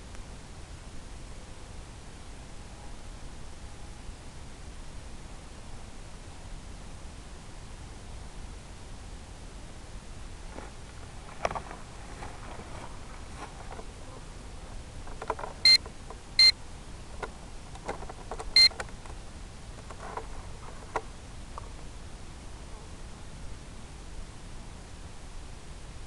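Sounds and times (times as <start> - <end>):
steady hiss: 0.0 - 26.0
faint clicks and rustles: 10.4 - 16.3, 17.1 - 21.9
short electronic beeps: 15.6 - 16.6.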